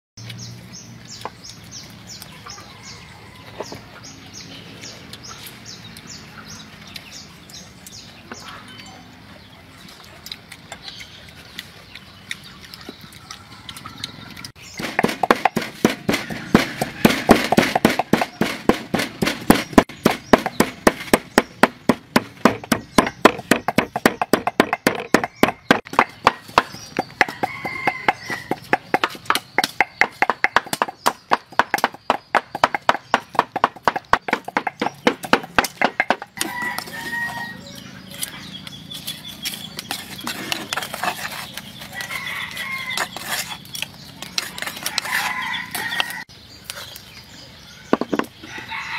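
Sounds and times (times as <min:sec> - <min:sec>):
chickens clucking and crowing: 0:01.9 - 0:07.4, 0:12.6 - 0:20.0, 0:22.4 - 0:32.3, 0:33.5 - 0:38.7, 0:40.2 - 0:48.9
pestle pounding in mortar: 0:14.7 - 0:36.9.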